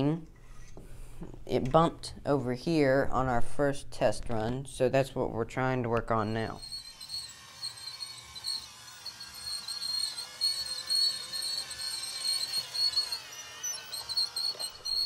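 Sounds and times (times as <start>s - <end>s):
toy train motor whine: 6.5s - 15.0s
toy train bumping over track: 6.7s - 15.0s.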